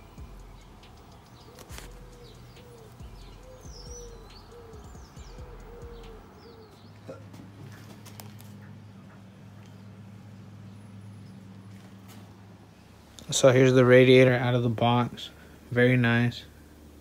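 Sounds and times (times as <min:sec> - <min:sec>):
high bird chirps: 0:00.0 - 0:07.1
birds calling low repeated notes: 0:00.0 - 0:12.0.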